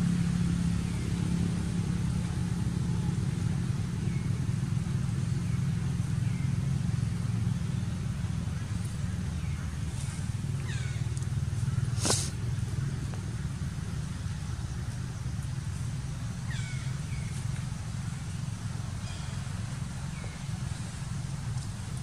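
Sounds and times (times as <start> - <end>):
steady low rumble: 0.0 - 22.0.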